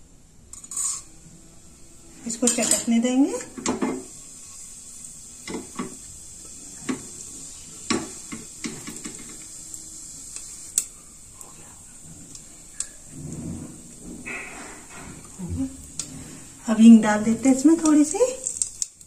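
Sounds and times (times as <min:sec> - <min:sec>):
seeds popping in hot oil: 0:00.5 - 0:14.2, 0:15.2 - 0:19.0.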